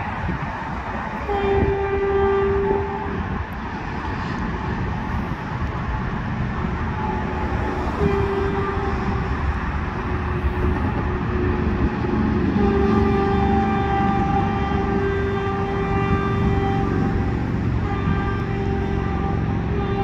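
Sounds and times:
train horn blasts: 0:01.2 - 0:03.5, 0:06.8 - 0:20.0.

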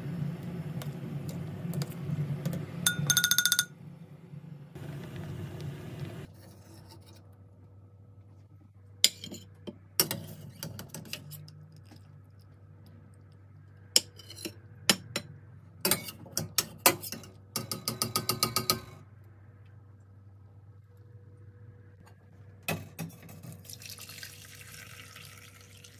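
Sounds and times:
metal spoon clinking on saucepan: 0:02.9 - 0:03.7.

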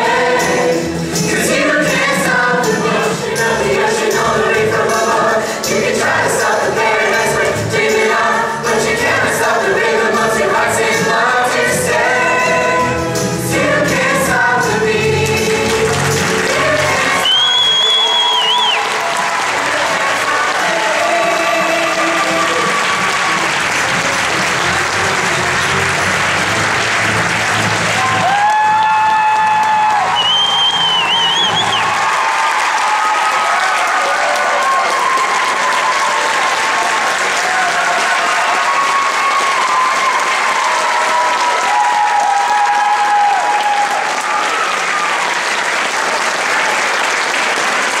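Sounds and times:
stage finale music: 0:00.0 - 0:45.7
audience applauding: 0:15.2 - 0:48.0
cheering calls: 0:16.6 - 0:46.1.

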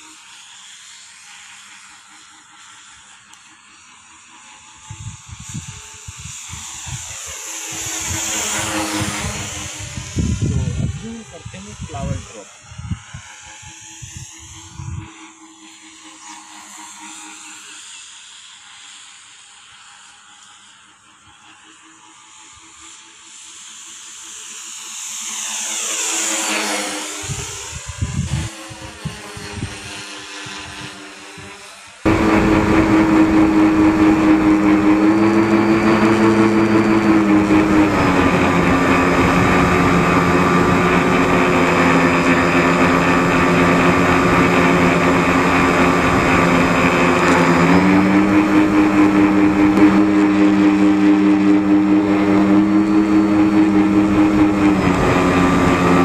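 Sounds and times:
electric motor whining: 0:01.2 - 0:17.8, 0:25.4 - 0:56.0
wind buffeting microphone: 0:04.8 - 0:15.1, 0:27.2 - 0:56.0.

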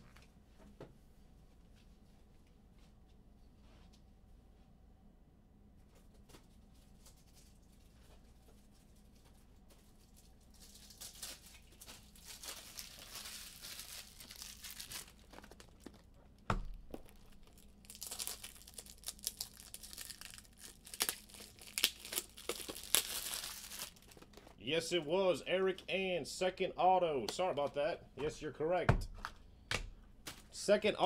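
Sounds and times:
plastic packaging crinkling: 0:06.5 - 0:24.6.

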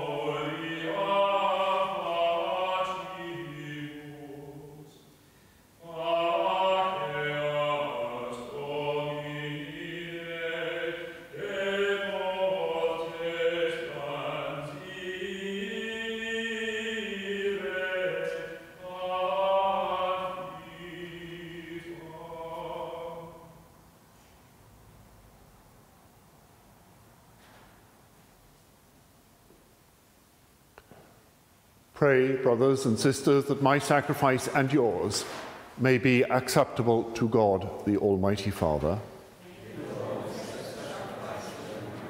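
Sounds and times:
unaccompanied sung chant: 0:00.0 - 0:05.1, 0:05.8 - 0:23.8, 0:39.4 - 0:42.0.

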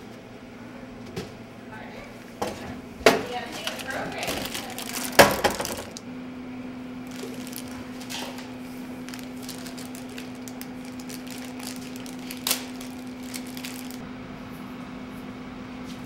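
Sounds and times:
steady low hum: 0:00.0 - 0:16.0
plastic snack wrapper crinkling: 0:03.6 - 0:06.0, 0:07.0 - 0:14.0.

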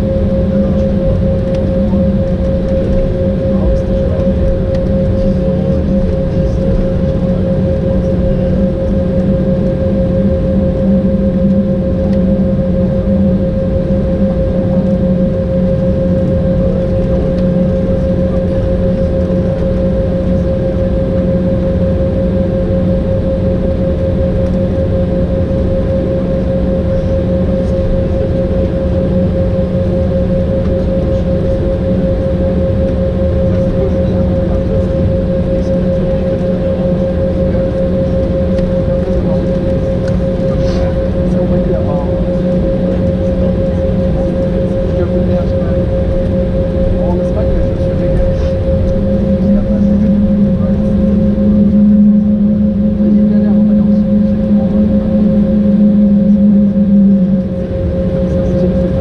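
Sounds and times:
jet engine whine and rumble: 0:00.0 - 0:59.0.

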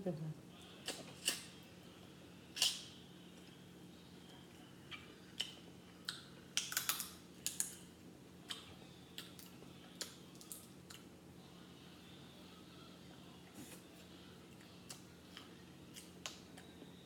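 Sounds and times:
crab shells cracking: 0:06.6 - 0:07.8.

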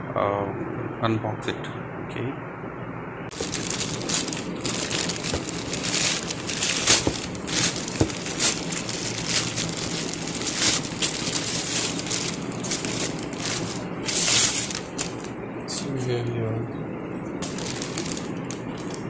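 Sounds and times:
plastic bag crinkling: 0:03.3 - 0:15.3, 0:17.4 - 0:19.0.

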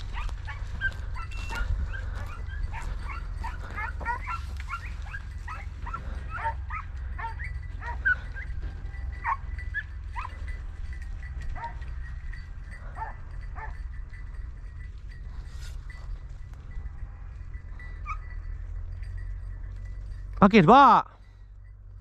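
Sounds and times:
steady low rumble: 0:00.0 - 0:20.4
dog yelping and whimpering: 0:00.1 - 0:08.5.

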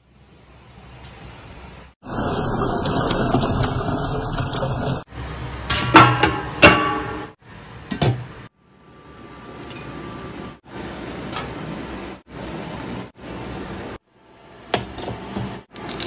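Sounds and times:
steel pot clinking: 0:05.6 - 0:07.4.

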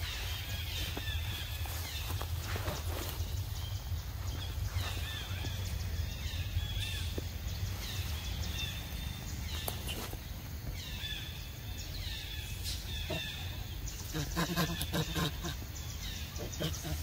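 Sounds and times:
low rumble: 0:00.0 - 0:13.1
high bird calls: 0:00.0 - 0:17.0.

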